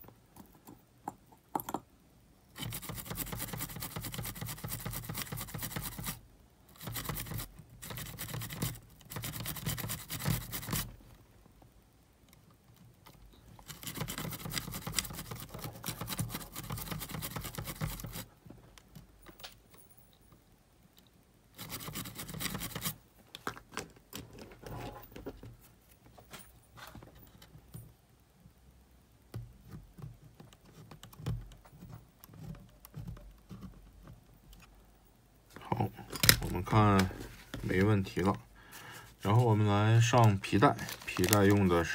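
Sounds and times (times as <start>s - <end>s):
faint ticks and scratches: 2.5s - 23.0s, 29.2s - 35.9s
toothbrush scrubbing circuit board: 2.6s - 10.8s, 13.6s - 18.2s, 21.6s - 22.9s.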